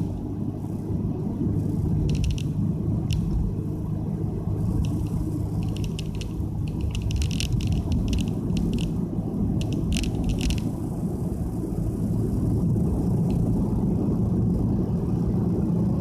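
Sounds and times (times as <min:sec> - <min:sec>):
car engine low rumble: 0:00.0 - 0:16.0
light rattling clicks: 0:02.0 - 0:03.4, 0:04.7 - 0:09.0, 0:09.6 - 0:10.8.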